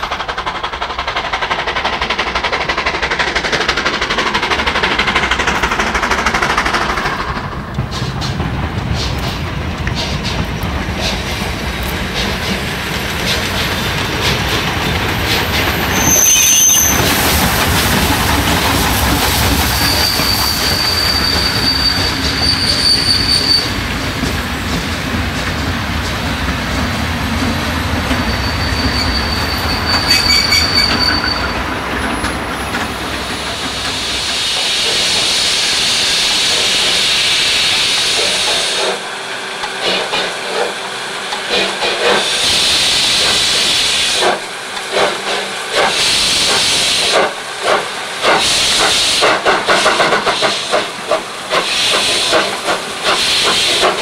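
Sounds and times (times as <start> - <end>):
steam hissing: 0.0 - 54.0
train wheels squealing: 15.2 - 24.8, 28.0 - 39.1.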